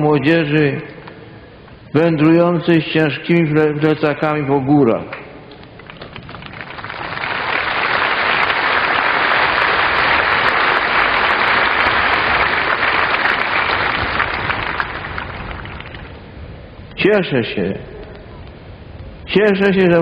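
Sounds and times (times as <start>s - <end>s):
large crowd applauding: 5.6s - 16.2s.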